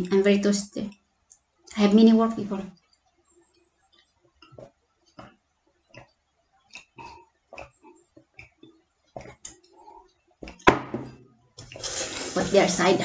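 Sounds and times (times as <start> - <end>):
person gulping: 6.8 - 8.6
glass set down on table: 10.6 - 11.2.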